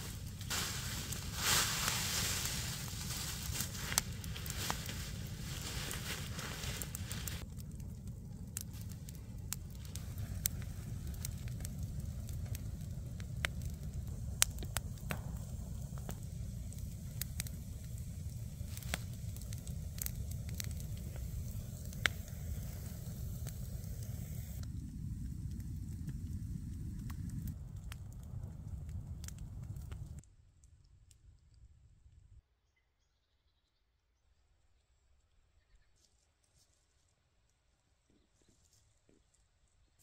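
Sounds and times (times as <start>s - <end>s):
hiss: 0.0s - 7.4s, 9.8s - 27.3s
low rumble: 0.0s - 30.2s
wood fire crackling: 0.0s - 30.7s
fire pops and snaps: 0.0s - 31.6s.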